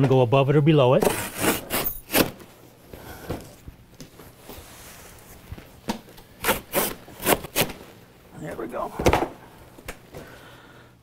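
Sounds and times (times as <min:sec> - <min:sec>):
knife slicing cardboard: 0:06.4 - 0:07.8.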